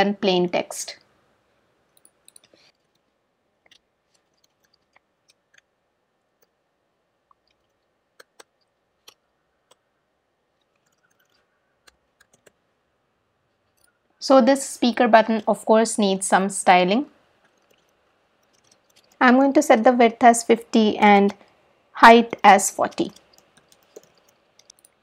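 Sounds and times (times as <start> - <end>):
keyboard and mouse clicks: 1.9 - 5.7, 7.3 - 9.9, 10.6 - 12.6, 17.4 - 19.5, 22.8 - 25.0.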